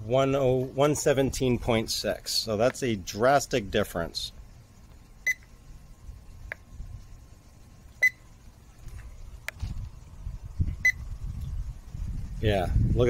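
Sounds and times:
low rumble: 3.6 - 13.0
thermometer short high beeps: 5.2 - 5.5, 8.0 - 8.3, 10.8 - 11.0.

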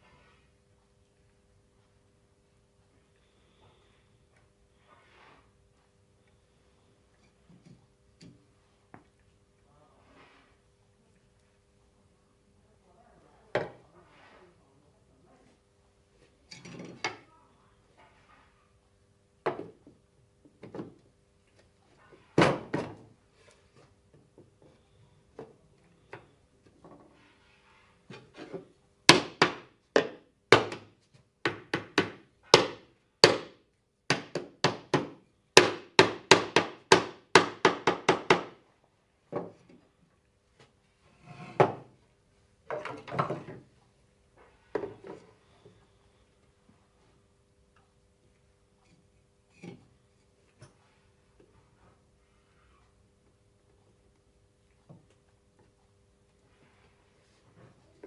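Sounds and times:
hammer striking wood: 29.1 - 38.6.

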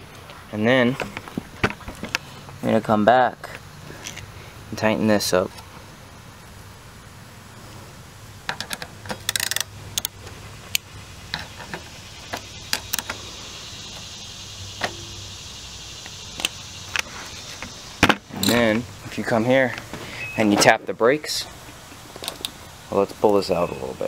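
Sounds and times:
socket wrench clicking: 8.6 - 13.2.

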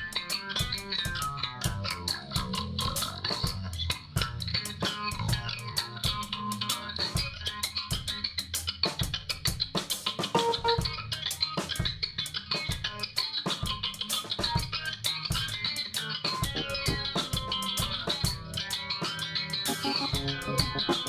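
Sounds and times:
drum kit with cymbals: 0.0 - 21.0
electric bass: 0.6 - 8.4, 16.5 - 18.8, 19.6 - 21.0
electric keyboard: 10.3 - 11.0, 16.5 - 18.0, 19.6 - 21.0.

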